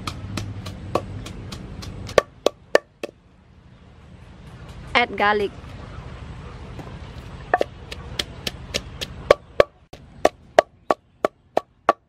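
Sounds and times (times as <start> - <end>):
pestle pounding in mortar: 0.0 - 3.2, 7.5 - 12.0.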